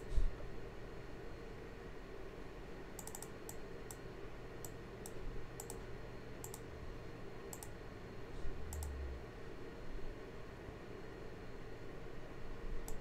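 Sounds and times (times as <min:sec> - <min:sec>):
faint steady hum: 0:00.0 - 0:13.0
mouse and keyboard clicks: 0:03.0 - 0:04.0, 0:08.7 - 0:09.0.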